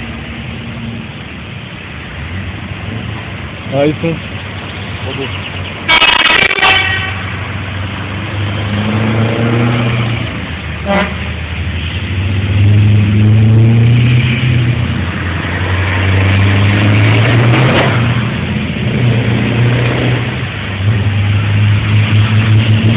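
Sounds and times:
diesel truck engines accelerating: 0.0 - 22.9
truck horn blast: 5.9 - 7.4, 10.8 - 11.3.

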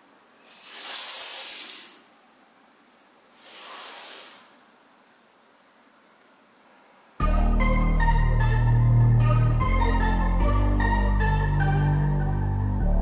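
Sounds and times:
hissing swishes: 0.4 - 2.1, 3.3 - 4.6.

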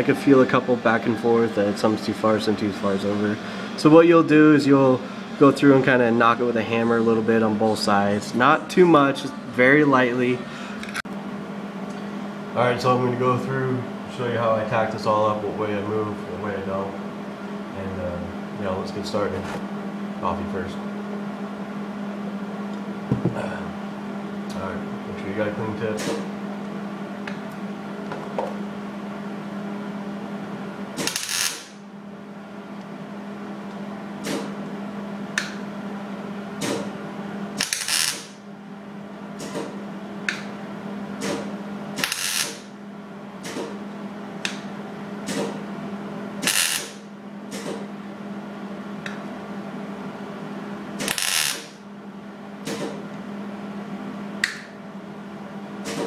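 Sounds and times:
welder crackling: 51.0 - 51.7.

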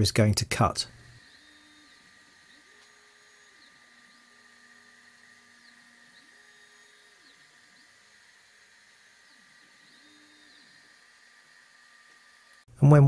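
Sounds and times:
stepper motor whine: 0.9 - 12.7.

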